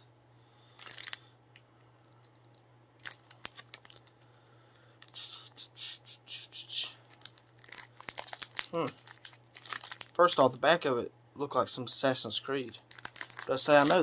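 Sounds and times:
plastic wrapping crinkling: 0.8 - 1.2, 2.0 - 5.2, 7.0 - 10.4, 12.7 - 14.0.

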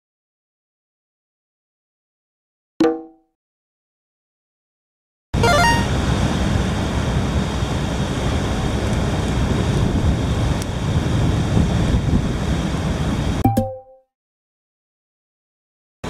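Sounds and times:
wind rumbling on microphone: 8.5 - 13.4.

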